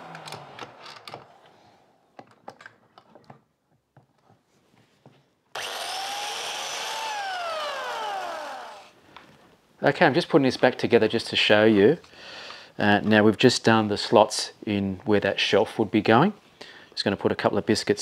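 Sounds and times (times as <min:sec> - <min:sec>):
power tool motor whining: 0:00.0 - 0:01.7, 0:05.6 - 0:09.0.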